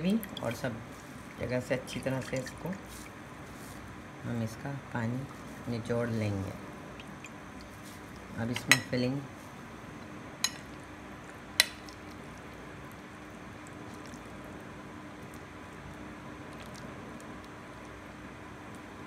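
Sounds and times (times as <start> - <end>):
spoon scooping moist filling: 6.9 - 18.0
metal spoon clinking on glass bowl: 10.4 - 10.7.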